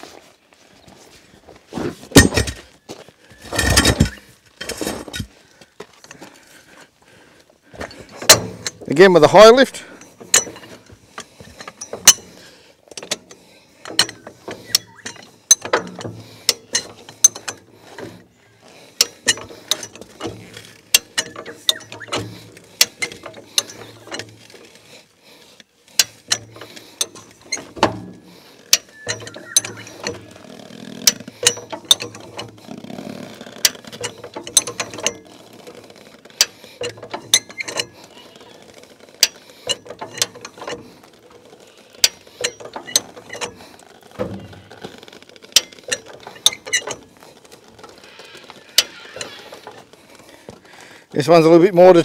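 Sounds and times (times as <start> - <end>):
jack ratchet clicking: 8.2 - 18.2, 18.8 - 25.0, 25.6 - 51.2.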